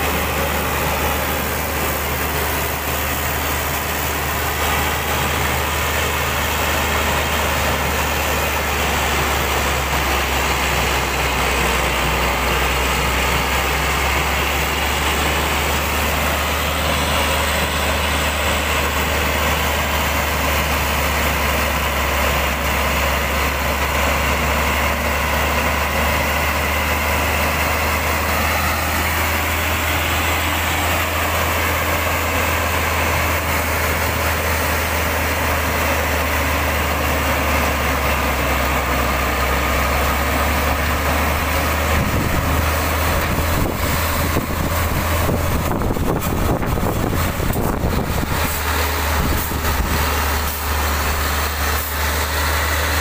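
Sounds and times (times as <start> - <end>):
diesel truck engine droning: 0.0 - 53.0.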